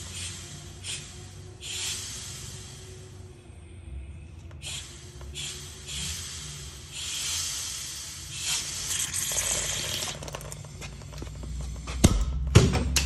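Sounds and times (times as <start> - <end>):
hissing spray: 0.0 - 3.1, 4.6 - 10.2.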